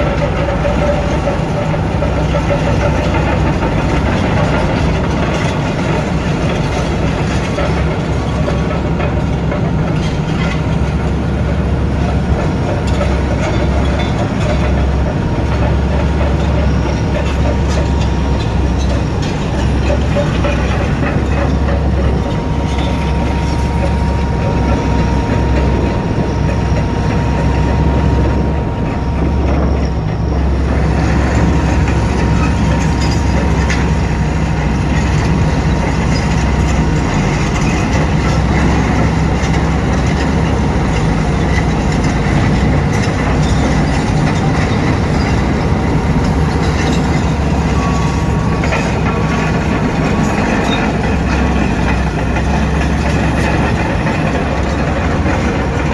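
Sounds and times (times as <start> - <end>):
heavy diesel machinery rumbling: 0.0 - 55.9
rattling and clatter: 0.0 - 55.9
thin steady whine: 16.6 - 55.9.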